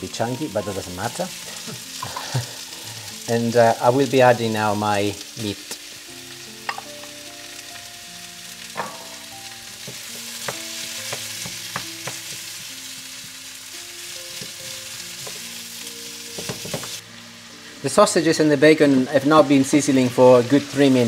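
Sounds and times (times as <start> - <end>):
food sizzling in a frying pan: 0.0 - 21.0
wooden spoon knocking on pan: 9.8 - 12.7, 16.3 - 17.0.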